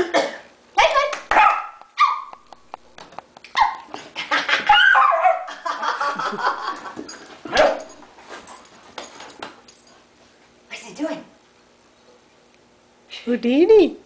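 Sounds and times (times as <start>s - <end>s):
dogs barking: 1.3s - 2.4s, 3.6s - 5.6s, 7.5s - 8.0s
dogs yipping in play: 1.3s - 2.4s, 3.5s - 5.5s, 7.5s - 8.0s
woman laughing: 4.0s - 4.8s, 5.4s - 7.1s.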